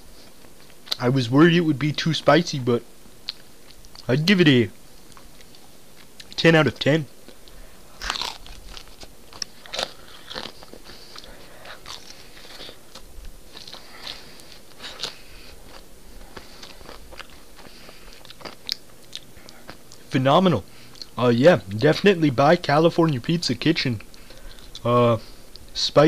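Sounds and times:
person chewing crispy pizza: 0:05.0 - 0:06.4, 0:07.2 - 0:20.1, 0:24.0 - 0:25.8.

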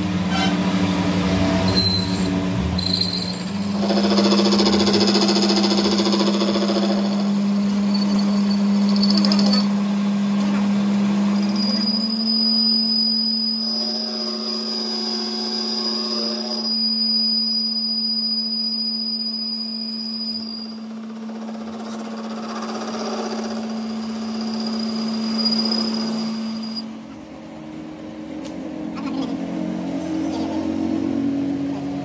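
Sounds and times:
high whine of cutting tool: 0:00.0 - 0:32.0
lathe motor hum: 0:00.6 - 0:12.2.

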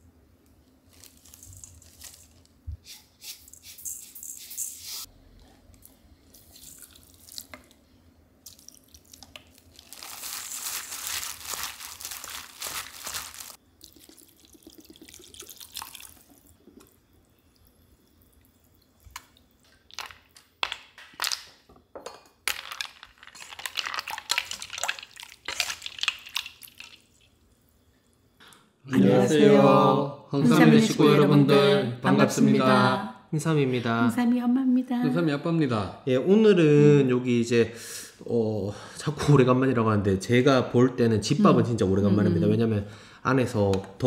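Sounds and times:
water pouring into metal bowl: 0:13.8 - 0:16.6.

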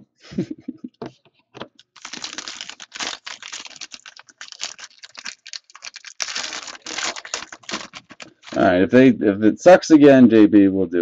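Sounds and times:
foil wrappers crinkling and tearing: 0:01.8 - 0:08.6.

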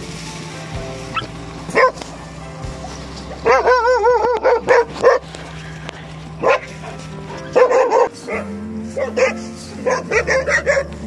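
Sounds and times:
soft background music: 0:00.0 - 0:11.0
dog barking: 0:01.1 - 0:02.0, 0:03.4 - 0:05.3, 0:06.4 - 0:10.9.

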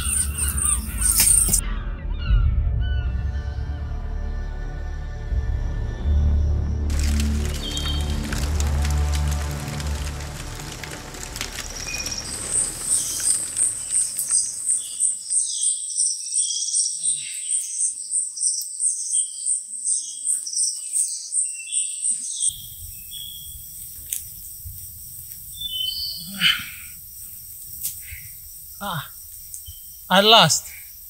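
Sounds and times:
bird-like chirps: 0:00.0 - 0:01.6, 0:11.5 - 0:31.0
crickets chirping: 0:00.0 - 0:01.6, 0:06.9 - 0:20.8, 0:22.2 - 0:31.0.

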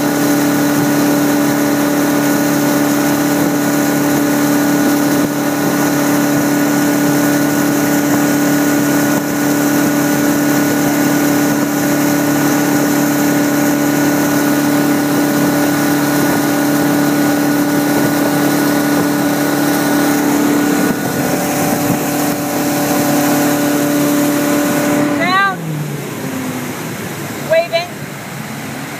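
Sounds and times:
boat engine drone: 0:00.0 - 0:28.9
rush of spray and wind: 0:00.0 - 0:28.9.

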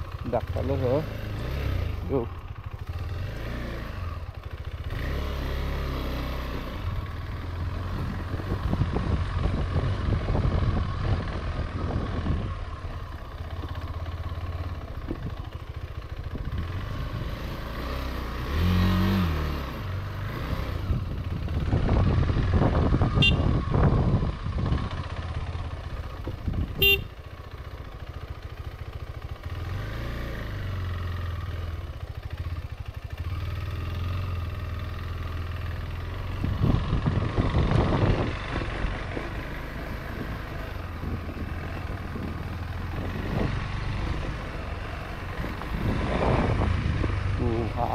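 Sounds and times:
motorcycle engine revving: 0:00.0 - 0:47.9
short horn beep: 0:23.2 - 0:23.5, 0:26.8 - 0:27.1.

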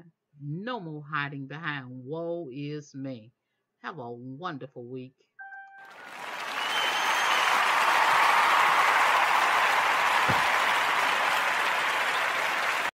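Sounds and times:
audience applause: 0:05.8 - 0:12.9.

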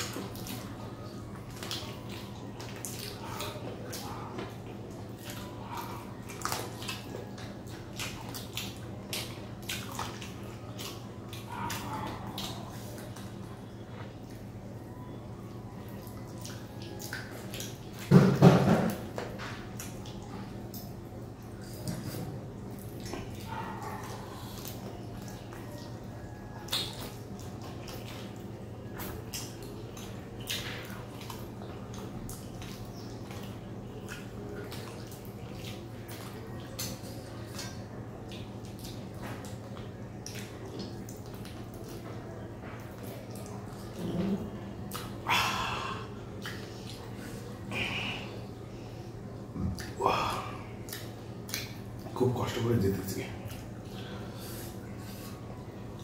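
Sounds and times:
wet chewing: 0:00.0 - 0:52.2
low steady hum: 0:00.0 - 0:56.0
lip-smacks: 0:26.6 - 0:42.2, 0:42.8 - 0:48.6, 0:49.6 - 0:52.1.

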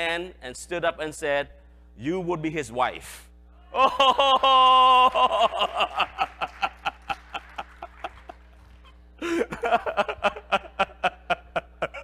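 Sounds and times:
man laughing: 0:03.7 - 0:12.0.

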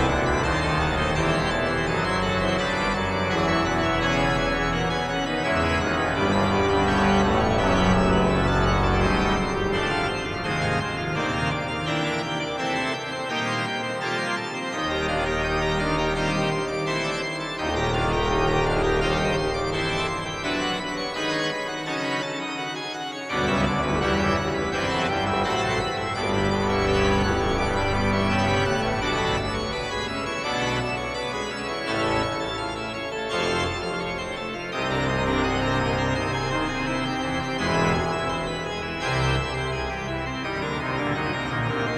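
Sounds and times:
organ playing chords: 0:00.0 - 0:41.9.

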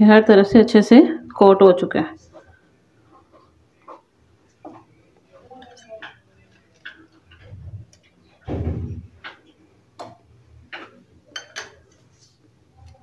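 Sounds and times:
forks clinking against glass: 0:11.3 - 0:11.9.

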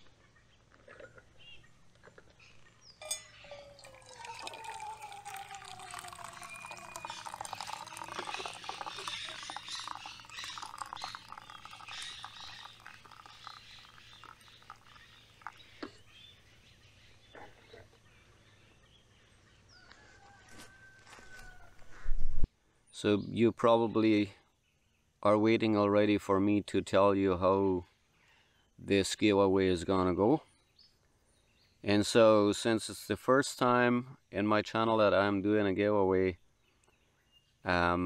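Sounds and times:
sharp clink: 0:03.0 - 0:03.9
coffee pouring into a mug: 0:03.0 - 0:16.1.

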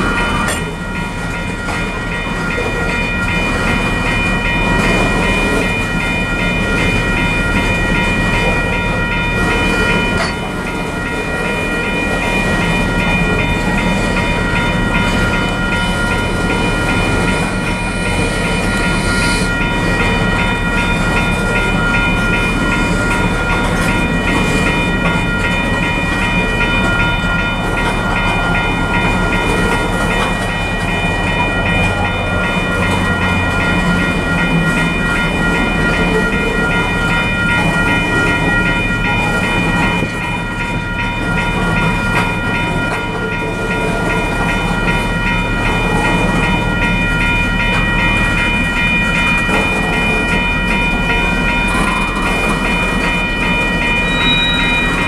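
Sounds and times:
train wheels rumbling on rails: 0:00.0 - 0:55.0
high-pitched wheel squealing: 0:54.1 - 0:55.0.

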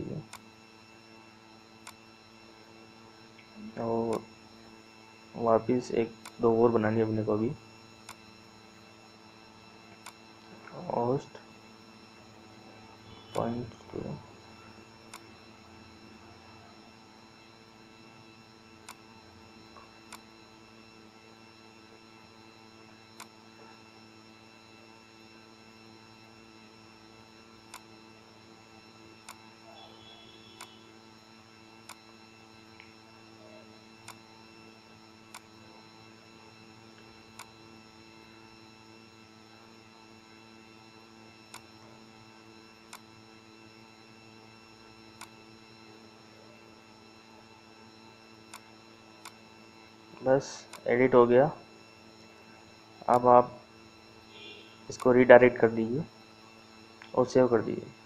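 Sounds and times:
electrical hum: 0:00.0 - 0:58.0
faint whining tones: 0:00.0 - 0:58.0
computer mouse click: 0:30.6 - 0:30.8.

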